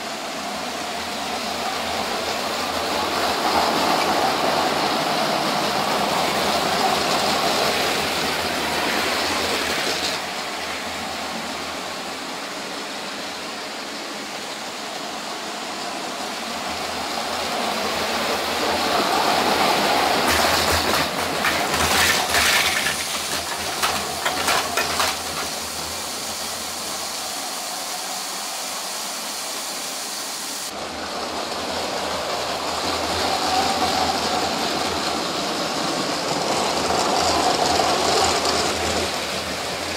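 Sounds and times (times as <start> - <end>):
wheels rattling over track joints: 0.0 - 12.3, 15.0 - 27.1, 30.7 - 39.9
sharp clicks and clacks: 20.2 - 25.9
toy train motors whirring: 20.2 - 27.0.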